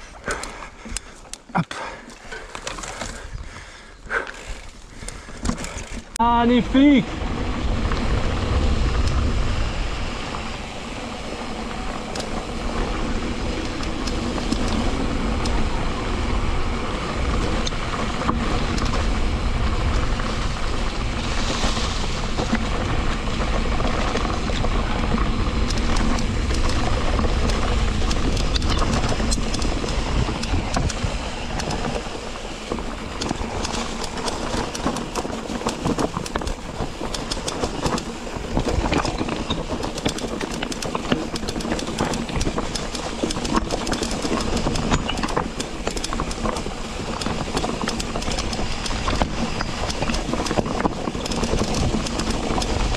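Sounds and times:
bike rattling clicks: 0:00.0 - 0:52.9
tyres on rough ground: 0:00.0 - 0:52.9
wind rumbling on camera: 0:00.0 - 0:52.9.

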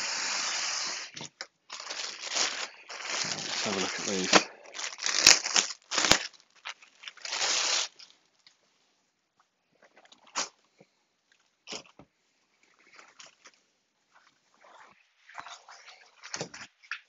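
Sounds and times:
plastic packaging crinkling: 0:01.7 - 0:08.2.

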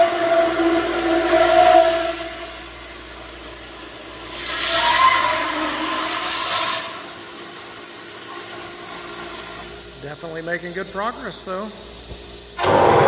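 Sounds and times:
bit cutting foam: 0:12.6 - 0:13.0
router spindle whine: 0:12.6 - 0:13.0.

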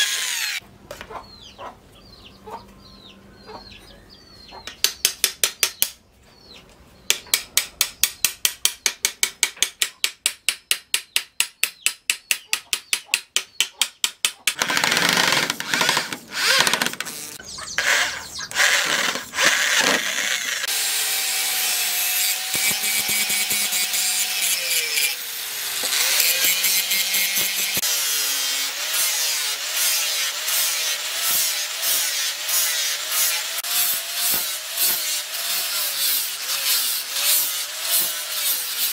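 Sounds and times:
angle grinder sanding wood: 0:00.0 - 0:00.6, 0:14.6 - 0:38.9
electric drill boring wood: 0:00.0 - 0:00.6, 0:14.6 - 0:38.9.

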